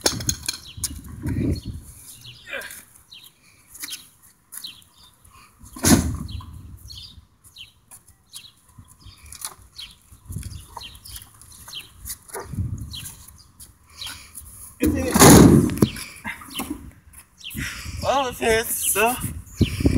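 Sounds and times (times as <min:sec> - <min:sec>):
small birds chirping: 0:00.4 - 0:15.1, 0:15.7 - 0:19.9
door bang on asphalt: 0:14.8 - 0:15.9.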